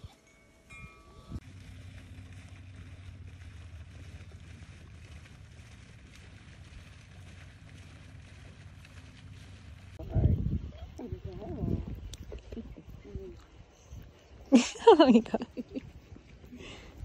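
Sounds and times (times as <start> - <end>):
steady low hum: 0.4 - 17.0
wind hiss on microphone: 10.0 - 17.0.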